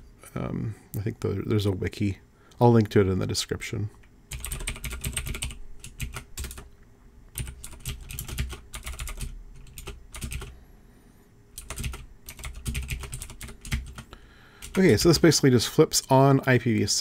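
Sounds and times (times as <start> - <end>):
typing on computer keyboard: 4.3 - 6.7, 7.4 - 10.5, 11.6 - 15.0.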